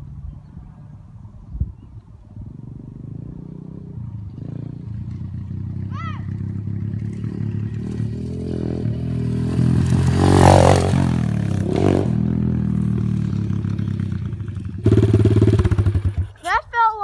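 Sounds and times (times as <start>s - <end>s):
dirt bike engine: 2.4s - 16.9s
loud engine puttering: 14.8s - 16.4s.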